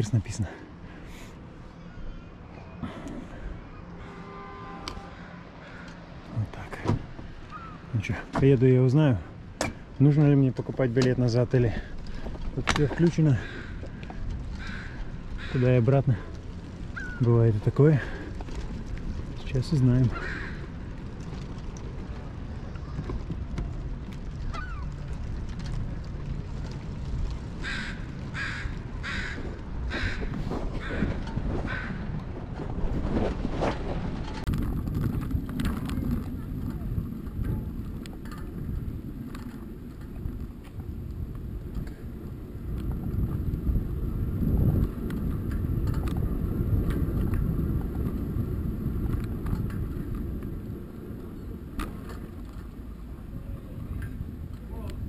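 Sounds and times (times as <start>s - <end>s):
bicycle tyres on road: 0.0s - 55.0s
crow cawing: 5.1s - 6.0s, 13.4s - 15.6s, 20.1s - 20.8s, 27.6s - 32.1s
wind rushing on microphone: 6.4s - 55.0s.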